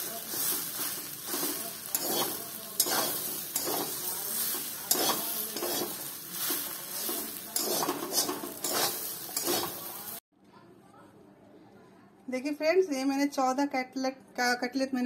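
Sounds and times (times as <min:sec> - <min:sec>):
food sizzling: 0:00.0 - 0:10.2
spatula scraping steel pan: 0:00.3 - 0:10.1.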